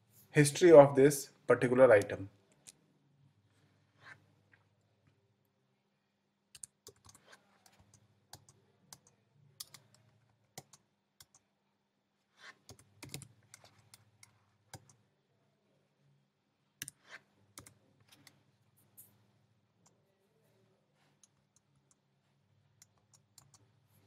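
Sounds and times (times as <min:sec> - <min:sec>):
computer keyboard keystrokes: 0:06.6 - 0:11.4, 0:12.7 - 0:15.0.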